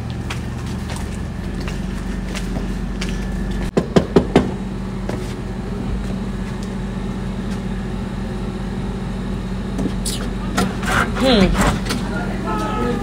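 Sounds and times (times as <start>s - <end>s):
low motor hum: 0.0s - 13.0s
sharp knocks: 3.7s - 4.6s.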